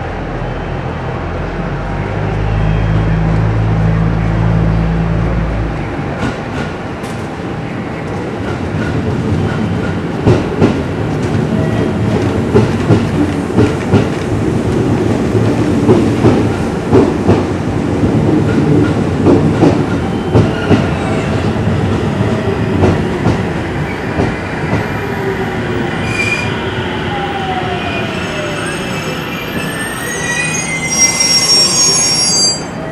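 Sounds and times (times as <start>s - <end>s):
high brake squeals: 26.0s - 26.7s, 28.0s - 32.9s.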